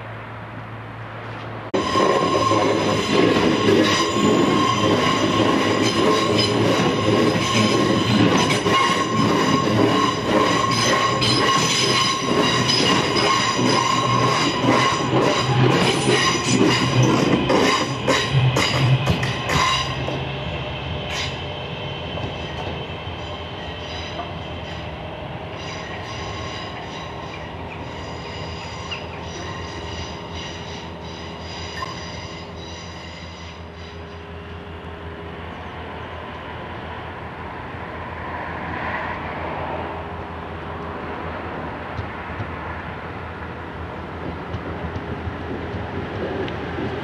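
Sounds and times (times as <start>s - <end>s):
train rumble: 0.0s - 47.0s
electric train traction whine: 1.8s - 36.4s.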